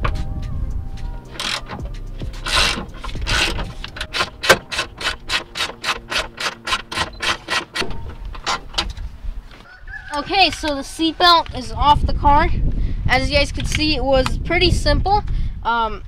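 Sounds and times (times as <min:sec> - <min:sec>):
ratchet clicks: 0:01.3 - 0:01.8, 0:02.4 - 0:09.0
ratchet wrench rasping: 0:01.3 - 0:08.7.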